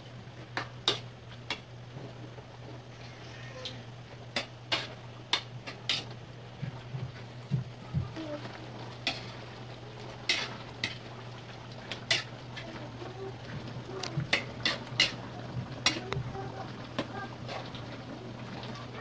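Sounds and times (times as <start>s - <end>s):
sauce simmering sizzle: 0.0s - 19.0s
steady low hum: 0.0s - 19.0s
metal ladle scraping a pan: 5.7s - 6.1s, 10.3s - 11.0s, 12.1s - 12.3s, 14.3s - 15.2s.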